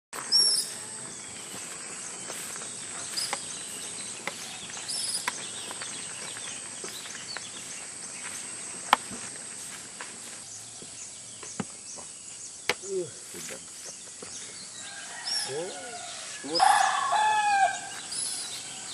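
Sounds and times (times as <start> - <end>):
high chirps and squeaks: 18.0 - 18.9.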